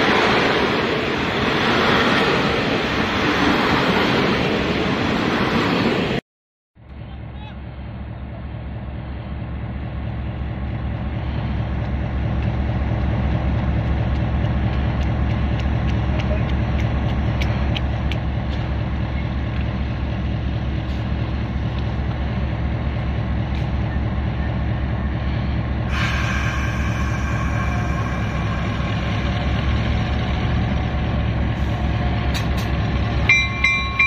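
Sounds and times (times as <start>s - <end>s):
locomotive engine throbbing: 6.8s - 34.0s.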